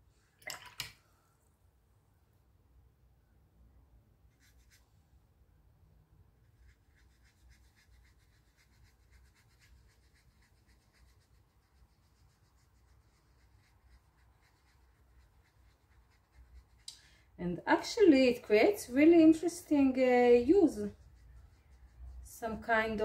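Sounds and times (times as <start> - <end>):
paintbrush scrubbing: 4.3 - 4.9, 6.4 - 16.9, 18.8 - 23.0.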